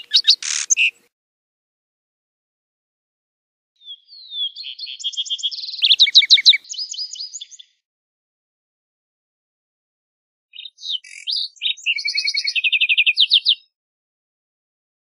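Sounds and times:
sparrow singing: 0.0 - 1.0, 3.8 - 7.8, 10.5 - 13.8.

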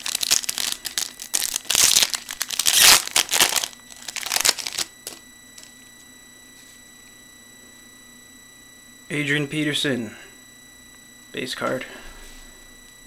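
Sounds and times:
foil wrapper tearing and crinkling: 0.0 - 5.2.

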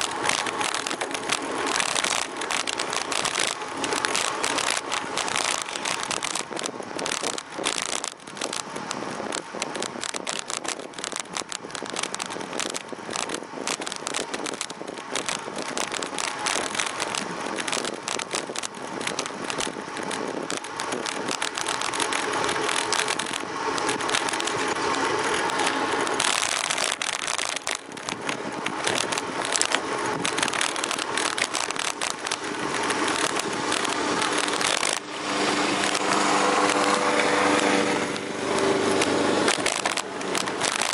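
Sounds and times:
bike frame rattling: 0.0 - 40.9
tyre noise on asphalt: 0.0 - 40.9
wind rushing over microphone: 0.0 - 40.9.

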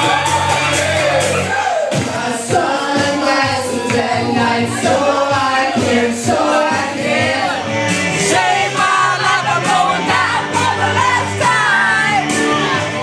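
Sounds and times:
people shouting: 0.0 - 2.1, 8.6 - 13.0
music: 0.0 - 13.0
people singing into microphones: 0.0 - 13.0.

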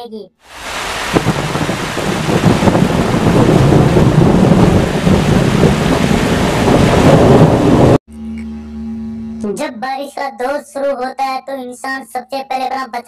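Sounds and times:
heavy rain pouring: 0.4 - 8.0
deep low rumble: 1.2 - 8.0.

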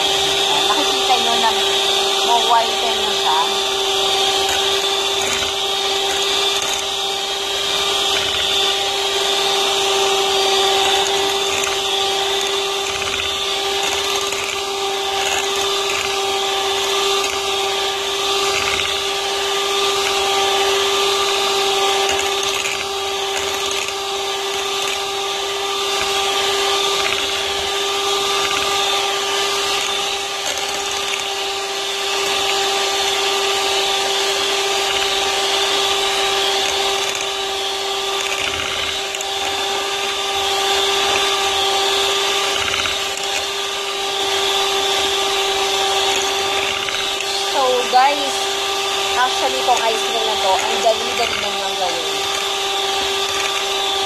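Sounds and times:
electric hand mixer whining: 0.0 - 54.0.

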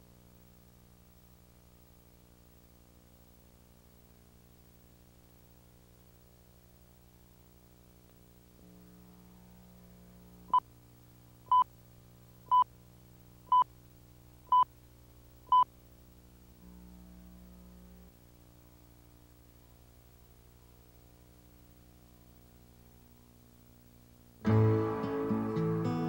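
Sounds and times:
steady low hum: 0.0 - 24.5
short beeps: 14.5 - 14.7.

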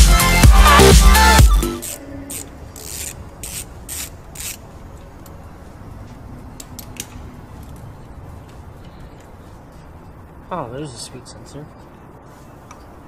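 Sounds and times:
rasping strokes: 1.6 - 4.6.

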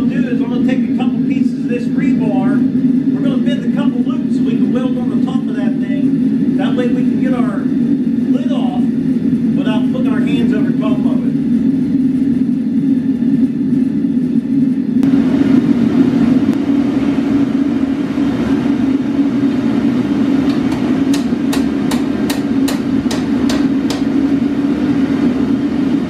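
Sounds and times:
gas forge burner roaring: 0.0 - 26.0
hammer striking metal on anvil: 20.5 - 24.2.

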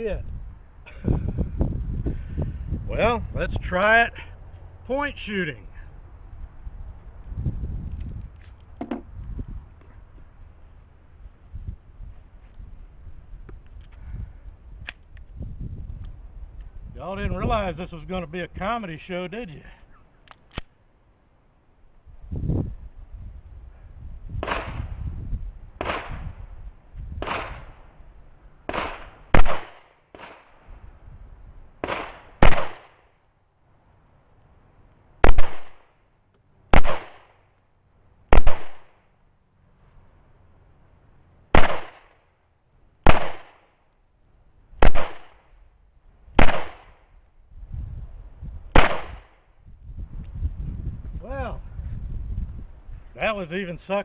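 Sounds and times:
pistol shots with echo: 28.7 - 30.5, 31.8 - 33.0, 35.2 - 35.8, 36.8 - 37.3, 38.3 - 38.9, 41.6 - 42.1, 43.1 - 43.7, 44.8 - 45.3, 46.4 - 46.9, 48.8 - 49.3.

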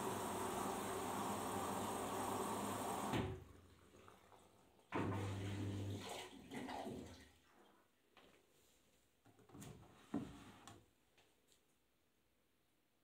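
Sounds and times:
washing machine filling with water: 0.0 - 7.5.

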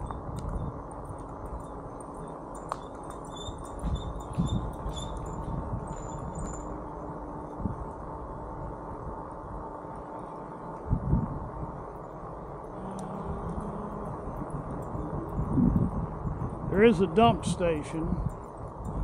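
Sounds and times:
wind on camera: 0.0 - 6.8, 10.7 - 19.0
bike rolling rumble: 0.0 - 19.0.

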